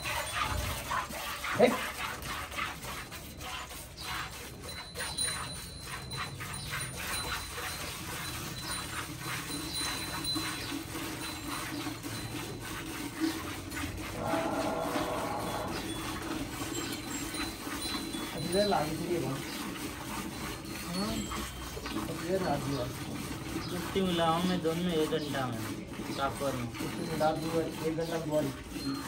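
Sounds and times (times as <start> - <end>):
milk squirting into steel bucket: 0.0 - 29.0
animal whining call: 14.0 - 18.3.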